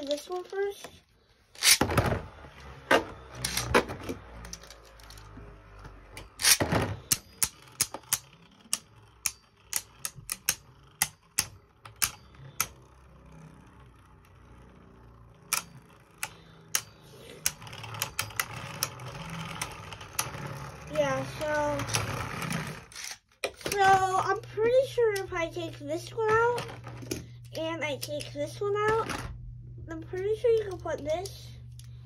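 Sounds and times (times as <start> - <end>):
spinning tops ripped from launchers: 1.6 - 1.9
spinning tops clacking: 6.2 - 12.7.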